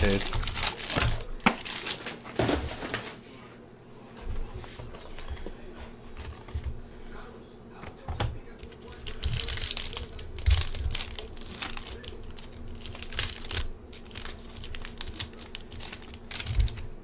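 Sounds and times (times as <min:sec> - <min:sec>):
foil wrapper crinkling: 0:00.0 - 0:03.2, 0:08.6 - 0:16.9.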